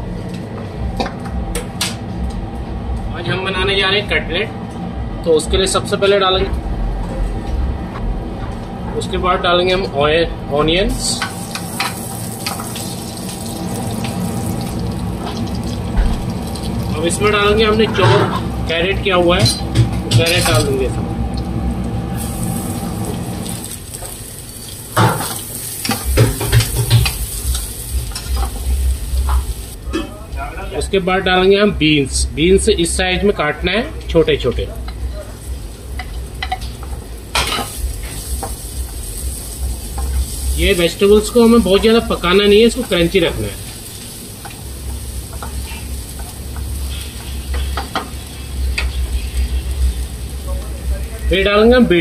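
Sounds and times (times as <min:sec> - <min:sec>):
steady low hum: 0:00.0 - 0:52.0
carrots sizzling in hot oil: 0:11.1 - 0:17.7, 0:22.1 - 0:29.8, 0:37.3 - 0:52.0
spoon knocking and scraping a pan: 0:25.0 - 0:27.2, 0:45.3 - 0:48.2.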